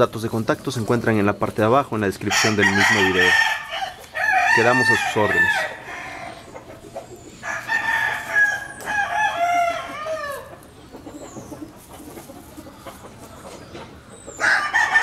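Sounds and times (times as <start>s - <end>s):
rooster crowing: 2.3s - 6.5s, 7.4s - 10.6s, 14.3s - 15.0s.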